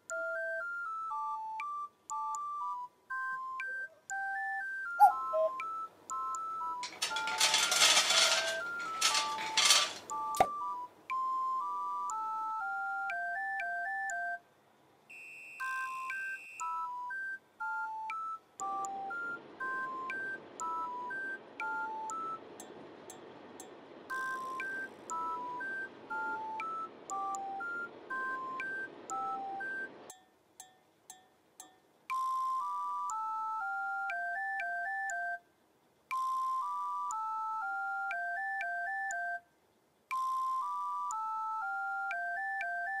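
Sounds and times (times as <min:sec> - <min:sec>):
beep-like melody: 0:00.1 - 0:14.4.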